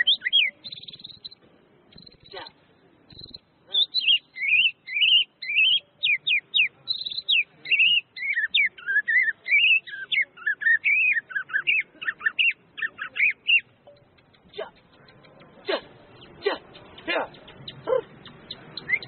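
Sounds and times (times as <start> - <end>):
bird singing whistled notes: 0.0 - 2.5, 3.1 - 19.0.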